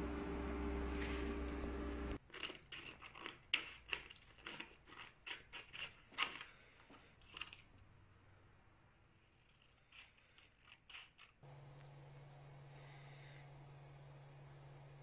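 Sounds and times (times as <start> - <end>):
scissors snipping paper: 2.2 - 7.7, 9.4 - 11.4.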